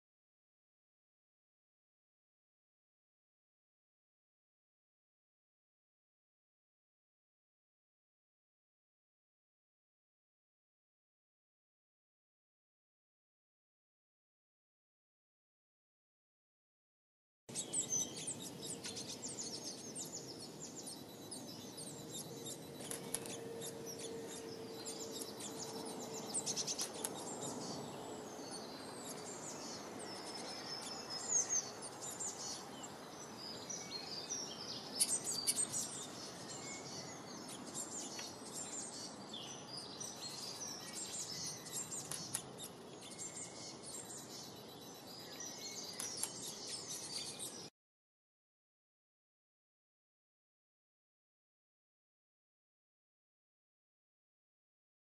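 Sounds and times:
songbirds chirping: 0:17.5 - 0:47.7.

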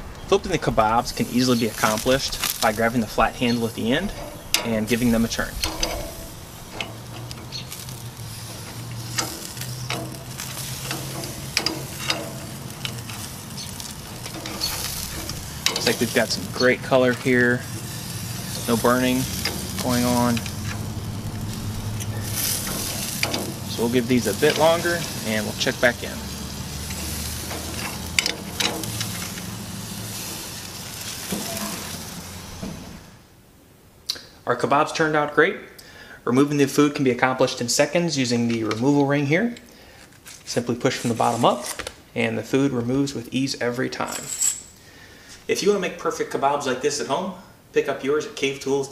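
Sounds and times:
food sizzling on a grill: 0:00.8 - 0:33.1
metal skewers clinking: 0:01.2 - 0:32.6, 0:44.0 - 0:44.8.

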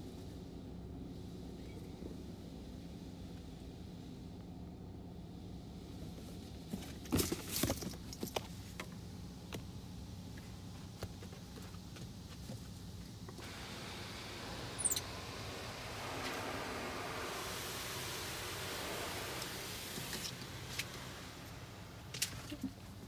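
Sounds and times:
steady low hum: 0:00.0 - 0:23.0
water spray hissing on car: 0:13.4 - 0:23.0.

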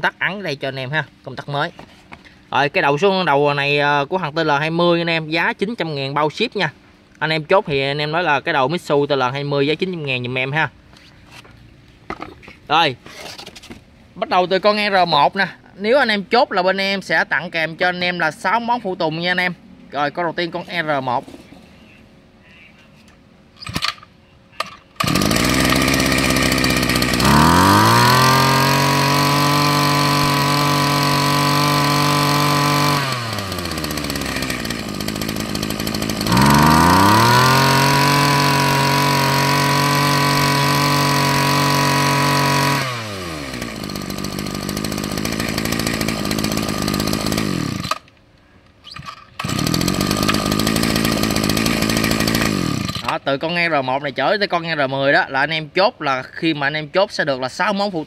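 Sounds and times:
pull-starter cord pulls: 0:23.6 - 0:48.2, 0:48.8 - 0:53.2
brush cutter engine revving: 0:25.0 - 0:48.1, 0:48.9 - 0:53.2.

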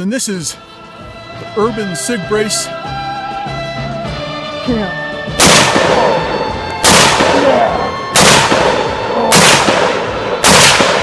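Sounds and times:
gunshots with long echo: 0:05.4 - 0:11.0.

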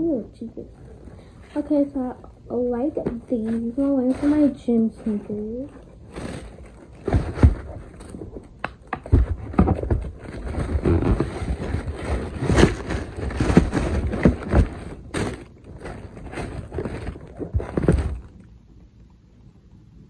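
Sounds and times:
tissue paper crinkling: 0:03.1 - 0:08.5, 0:09.1 - 0:18.4
knocks and thumps on box: 0:06.1 - 0:18.3.

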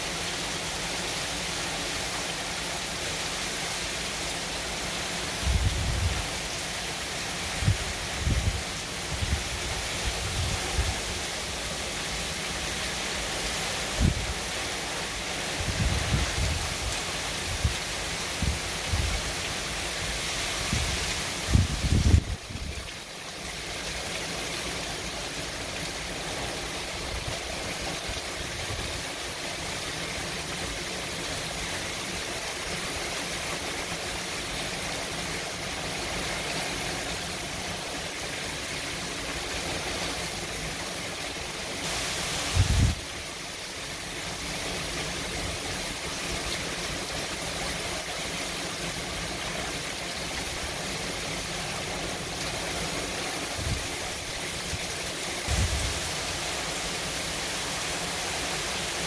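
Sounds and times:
driving rain roar: 0:00.0 - 0:59.0.

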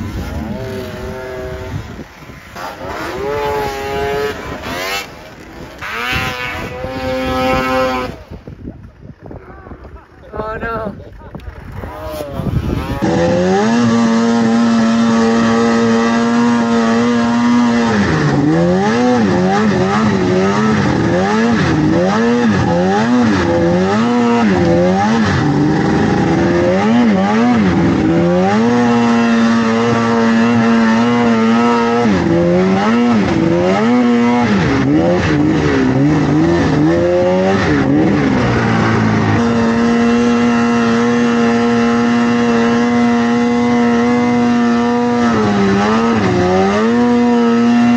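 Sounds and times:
snowmobile engine revving: 0:00.0 - 0:47.9
track and wind noise: 0:00.0 - 0:47.9.

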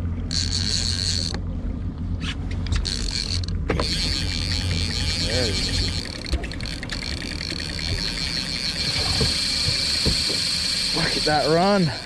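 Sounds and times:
outboard motor humming: 0:00.0 - 0:12.0
reel clicks: 0:00.2 - 0:01.4, 0:02.6 - 0:12.0
fishing reel clicker buzzing: 0:00.3 - 0:01.4, 0:02.7 - 0:12.0.

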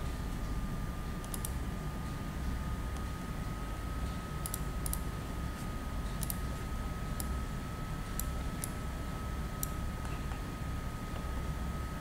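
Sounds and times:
computer mouse clicking: 0:01.2 - 0:01.6, 0:04.4 - 0:05.1, 0:06.2 - 0:06.4.

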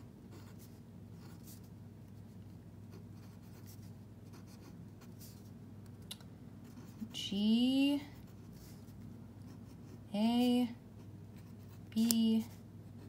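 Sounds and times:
pen scratching on paper: 0:02.9 - 0:05.5.

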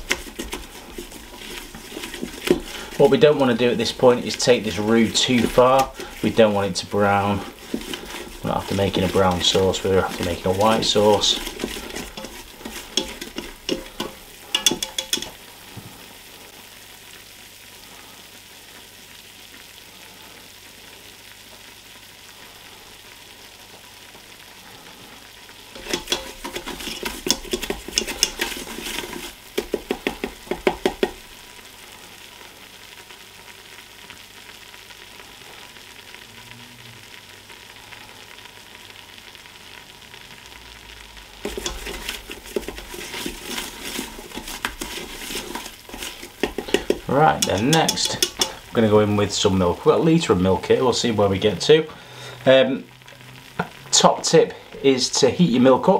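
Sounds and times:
whisk stirring in a pot: 0:00.0 - 0:15.4, 0:25.7 - 0:31.3, 0:41.4 - 0:48.8
faint sizzle: 0:00.0 - 0:55.9.

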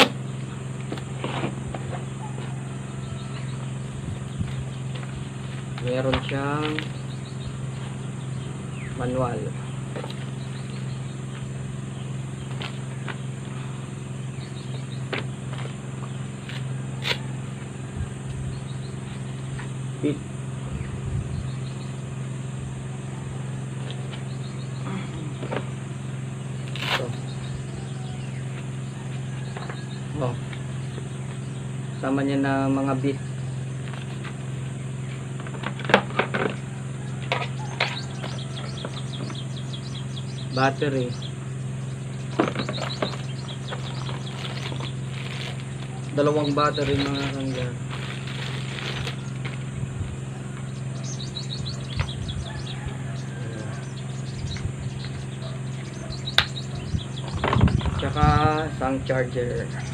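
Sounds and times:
steady low hum: 0:00.0 - 0:59.9
paper rustling: 0:43.8 - 0:45.9, 0:46.8 - 0:49.6.

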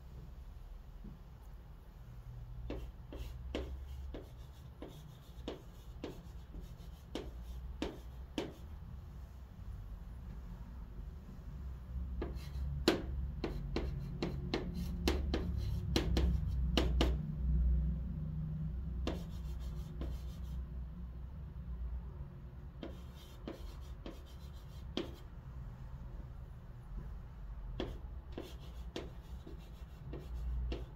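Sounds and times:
low steady hum: 0:00.0 - 0:30.9
chalk scratching on chalkboard: 0:02.7 - 0:08.8, 0:12.2 - 0:17.2, 0:19.0 - 0:20.6, 0:22.8 - 0:25.3, 0:27.8 - 0:30.9.

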